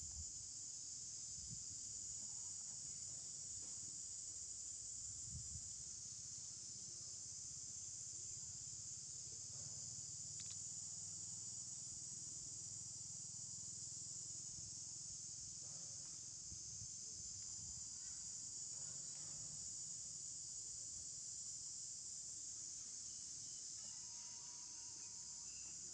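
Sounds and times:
high-pitched insect chorus: 0.0s - 25.9s.

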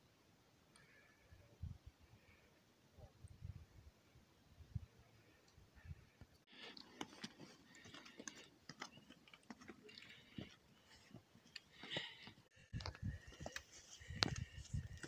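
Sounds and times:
footsteps crunching on stony path: 6.5s - 15.0s.

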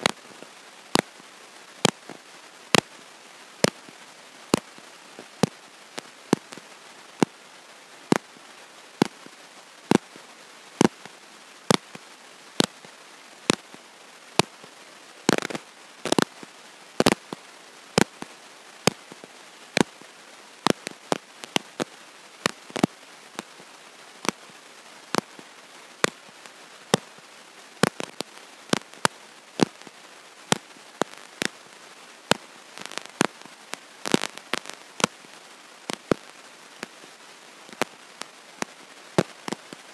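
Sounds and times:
crackling clicks and pops: 0.0s - 39.9s
faint steady hiss: 0.0s - 39.9s.

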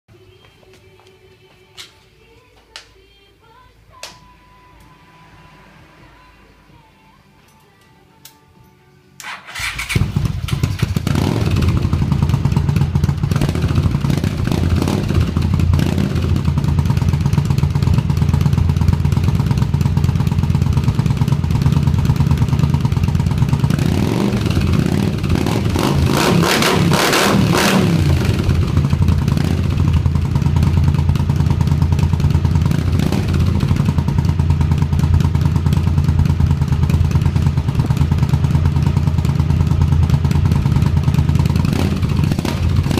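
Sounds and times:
motorcycle engine starting and revving: 9.2s - 42.9s.

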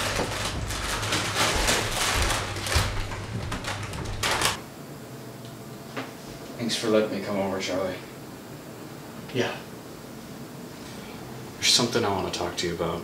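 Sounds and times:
door shutting: 0.0s - 4.6s
footsteps on wooden floor: 0.0s - 4.6s.

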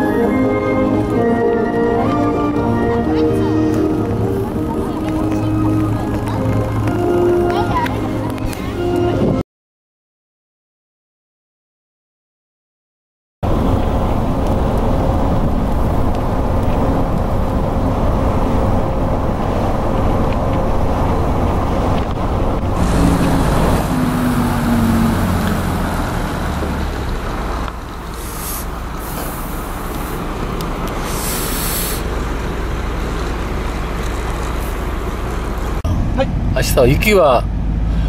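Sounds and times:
bus engine and road rumble: 0.0s - 9.4s, 13.4s - 38.0s
outdoor traffic noise: 0.0s - 9.4s, 13.4s - 38.0s
short hisses: 28.1s - 30.3s, 31.0s - 32.1s.

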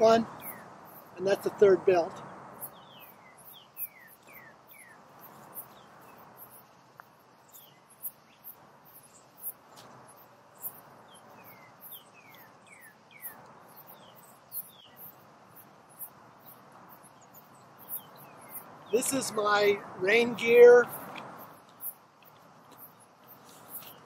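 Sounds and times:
insects chirping: 0.2s - 24.0s.

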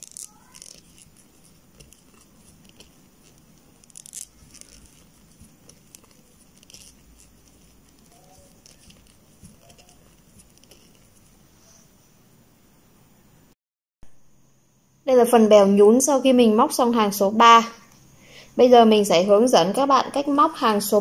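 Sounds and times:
crochet hook ticking: 0.0s - 11.1s
yarn rustling: 0.0s - 11.5s.

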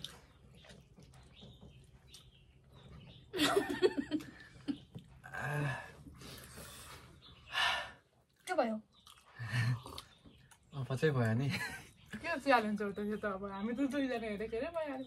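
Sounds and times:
people laughing: 3.4s - 4.8s.

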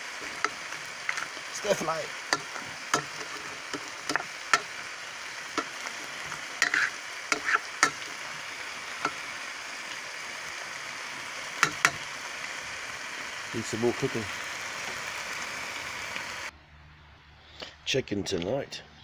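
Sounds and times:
food sizzling in a pan: 0.0s - 16.5s
spatula knocking and scraping pan: 2.3s - 4.7s, 5.6s - 8.1s.

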